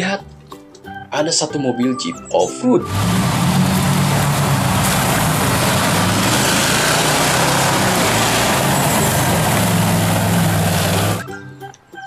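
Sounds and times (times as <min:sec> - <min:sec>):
truck engine revving high: 0:02.8 - 0:11.3
tyres spinning in mud: 0:02.9 - 0:11.2.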